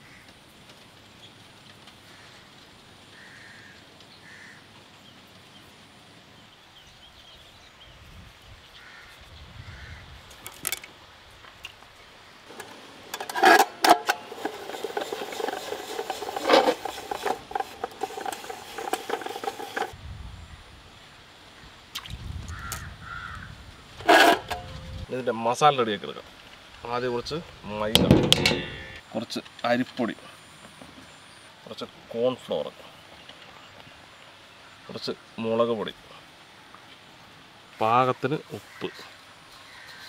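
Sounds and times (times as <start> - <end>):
potato cutter clicking and scraping: 12.5 - 19.9, 24.0 - 24.7.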